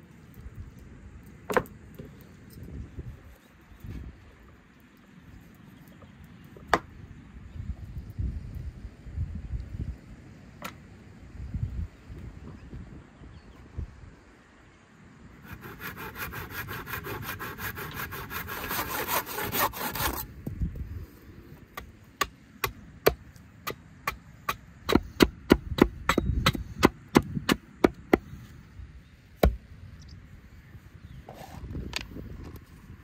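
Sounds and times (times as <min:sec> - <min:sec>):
rasping on wood: 0:15.4 - 0:20.2
axe chopping wood: 0:21.8 - 0:28.3, 0:29.4 - 0:29.6.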